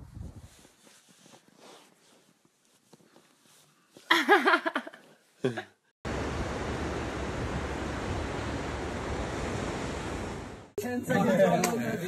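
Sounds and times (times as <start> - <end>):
wind on microphone: 0.0 - 0.6, 6.1 - 10.7
ocean surf: 6.1 - 10.8.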